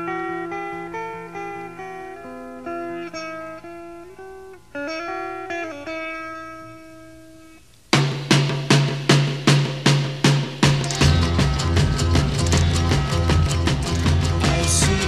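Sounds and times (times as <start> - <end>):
plucked guitar melody: 0.0 - 7.7, 10.6 - 15.0
music with loud evenly spaced hits: 8.0 - 15.0.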